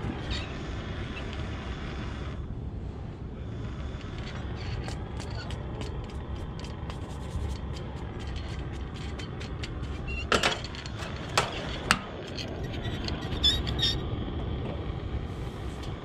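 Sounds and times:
steady low rumble: 0.0 - 16.0
wire brush scrubbing metal: 4.2 - 14.0.

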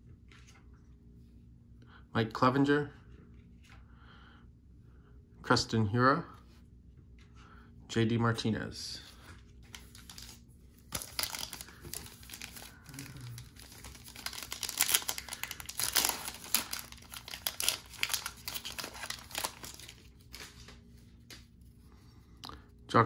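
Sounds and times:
wrapper tearing and crinkling: 9.7 - 20.7.

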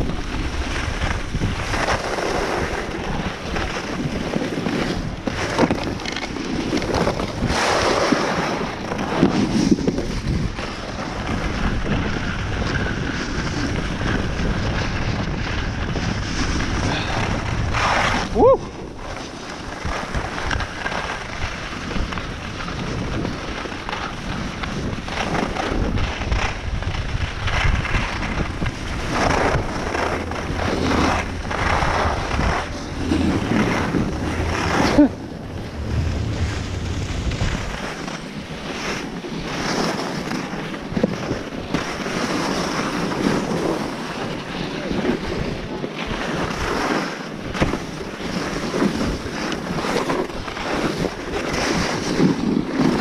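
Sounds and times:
skis scraping over snow: 0.0 - 53.0
wind on microphone: 0.0 - 53.0
low rumble: 27.5 - 38.9.

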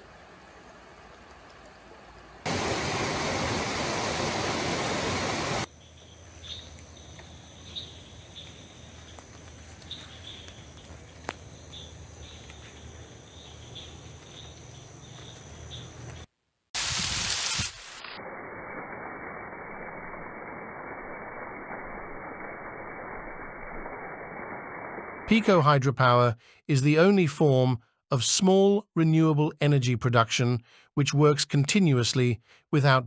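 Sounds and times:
faint stream murmur: 0.0 - 5.7
water rushing over rocks: 2.4 - 5.7
high insect drone: 2.5 - 16.3
insect chirps: 2.5 - 18.5.

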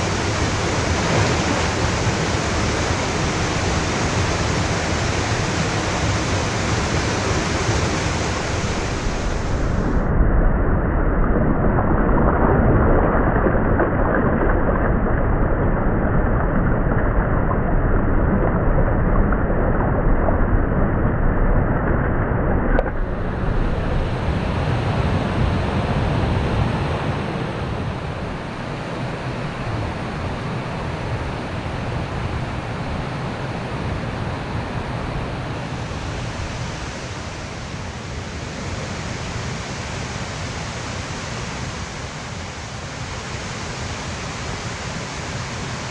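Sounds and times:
stream rushing over rocks: 0.0 - 9.9, 22.9 - 45.9.

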